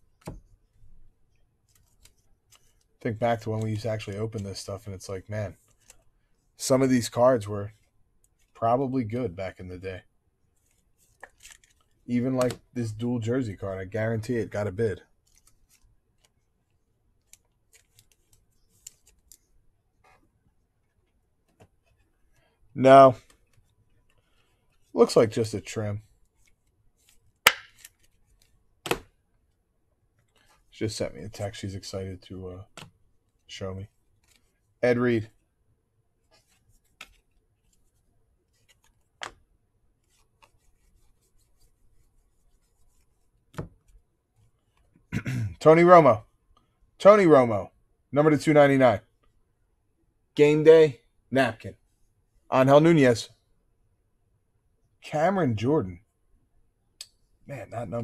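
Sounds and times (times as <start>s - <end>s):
cardboard cards rubbing and sliding: 17.3s - 20.3s, 36.2s - 39.4s, 40.0s - 44.0s.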